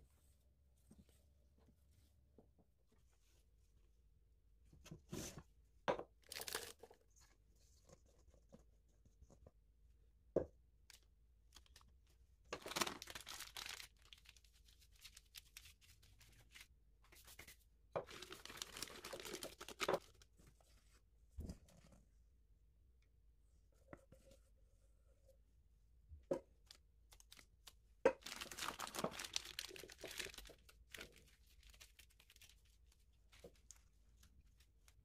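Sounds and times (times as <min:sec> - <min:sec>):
plastic bag crinkling: 0:06.2 - 0:06.9, 0:12.6 - 0:14.4, 0:18.0 - 0:20.2, 0:28.2 - 0:32.7.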